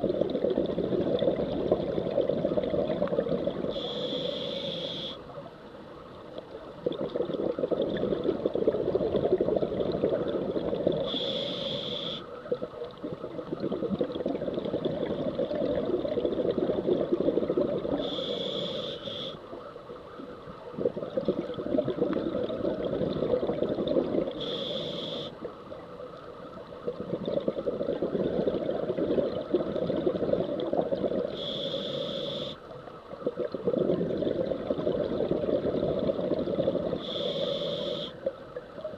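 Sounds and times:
exhaled air bubbling underwater: 0:00.0 - 0:05.5, 0:06.3 - 0:38.9
regulator inhalation hiss: 0:03.7 - 0:05.2, 0:11.0 - 0:12.3, 0:18.0 - 0:19.4, 0:24.4 - 0:25.4, 0:31.3 - 0:32.6, 0:37.0 - 0:38.2.

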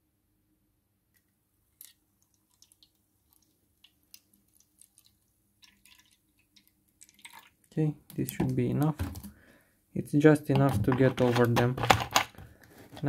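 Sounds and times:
liquid pouring and splashing: 0:01.8 - 0:09.2.

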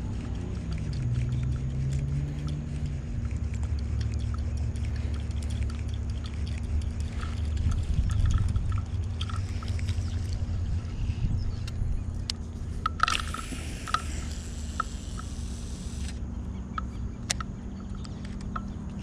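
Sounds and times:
wind rumbling on microphone: 0:00.0 - 0:14.2
steady low hum: 0:00.0 - 0:19.0
faint ticks: 0:00.5 - 0:10.4.

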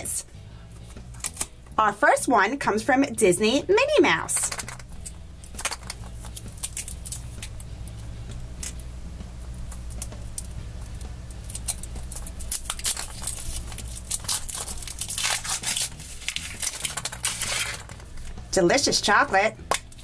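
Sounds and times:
foil wrapper crinkling: 0:04.4 - 0:07.9, 0:09.5 - 0:18.4.

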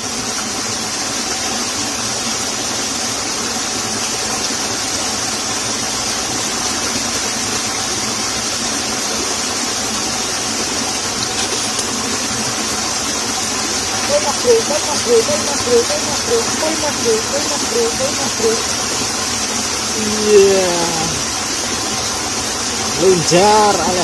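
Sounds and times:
water rushing in ditch: 0:00.0 - 0:24.0.

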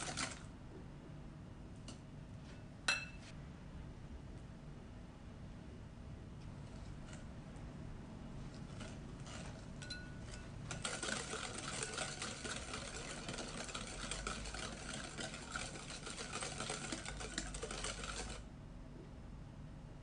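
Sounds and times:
whisk scraping bowl: 0:00.0 - 0:00.4, 0:08.4 - 0:18.5
wire whisk clattering against glass: 0:09.3 - 0:18.4.

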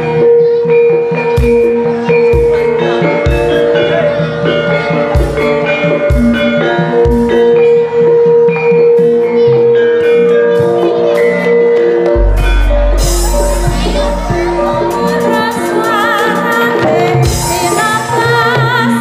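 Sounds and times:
ringing metal-keyed percussion: 0:00.8 - 0:19.0
low drum strokes: 0:12.2 - 0:16.0.

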